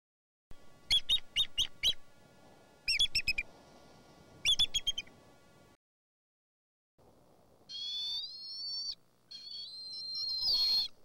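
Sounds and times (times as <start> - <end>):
faint outdoor hiss: 0.5 - 5.8, 7.0 - 11.0
eagle high piping calls: 0.9 - 2.0, 2.9 - 3.5, 4.4 - 5.1, 7.7 - 11.0.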